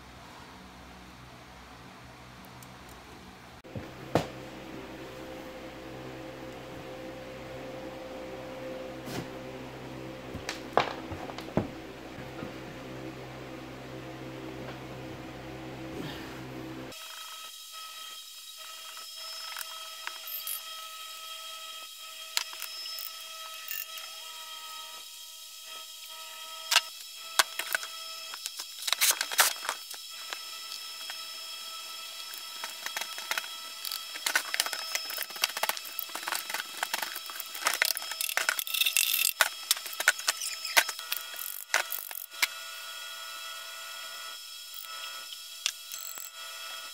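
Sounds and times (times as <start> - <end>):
high-pitched whine: 3.7 - 17.0.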